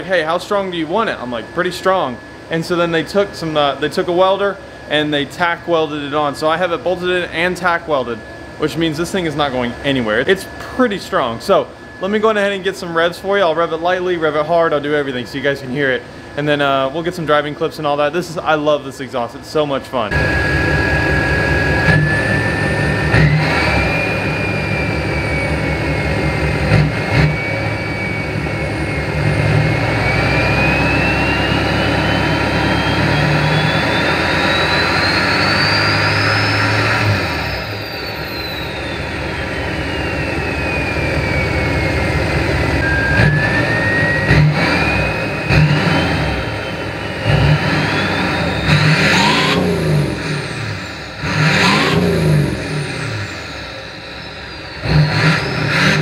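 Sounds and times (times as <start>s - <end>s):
diesel engine revving: 0.0s - 17.1s, 20.0s - 56.0s
turbo whistle: 20.1s - 56.0s.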